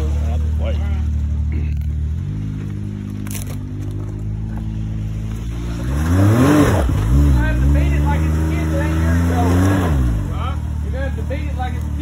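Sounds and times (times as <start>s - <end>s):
utility vehicle engine revving: 0.0s - 12.0s.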